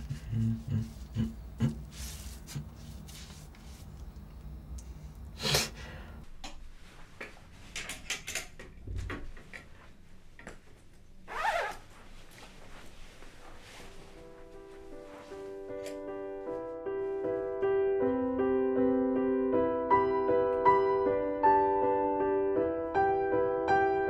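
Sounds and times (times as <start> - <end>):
low room hum: 0.0 - 6.3.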